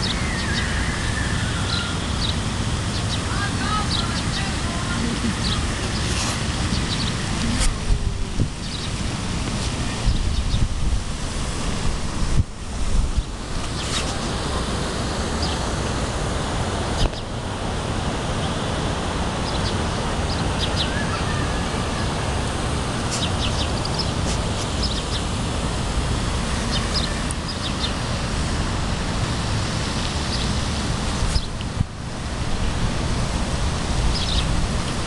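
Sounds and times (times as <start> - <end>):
high bird chirps: 0.0 - 3.2, 20.3 - 21.4
wind buffeting microphone: 0.0 - 35.0.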